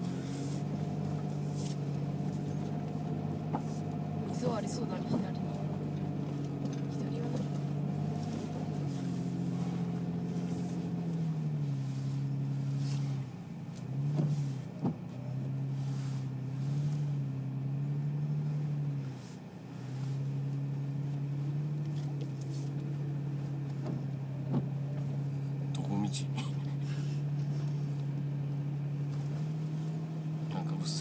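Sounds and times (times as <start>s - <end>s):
car engine droning: 0.0s - 31.0s.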